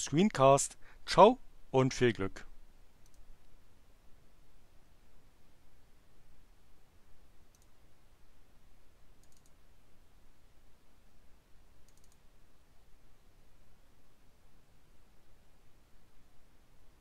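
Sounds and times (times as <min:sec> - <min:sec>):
faint low hum: 0:00.0 - 0:17.0
computer mouse button clicks: 0:09.2 - 0:09.5, 0:11.9 - 0:12.2.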